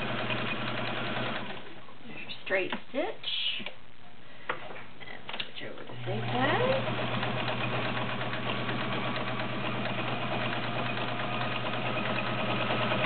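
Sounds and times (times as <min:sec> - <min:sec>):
sewing machine motor humming: 0:00.0 - 0:01.7, 0:06.0 - 0:13.0.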